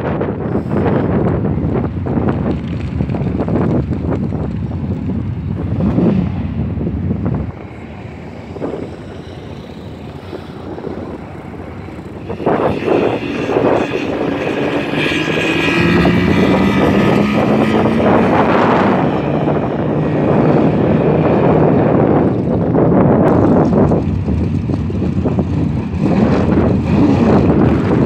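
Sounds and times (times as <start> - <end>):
engines revving and accelerating: 5.1 - 28.0.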